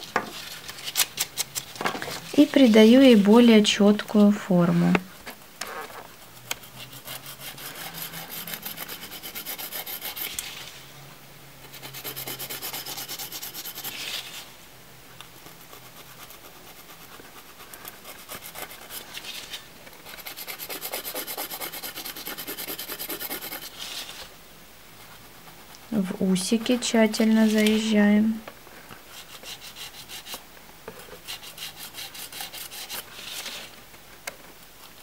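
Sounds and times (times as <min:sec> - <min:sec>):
nail file rasping on fingernail: 0:06.5 - 0:10.3, 0:11.8 - 0:14.0, 0:17.6 - 0:19.0, 0:20.0 - 0:23.7, 0:31.2 - 0:33.0.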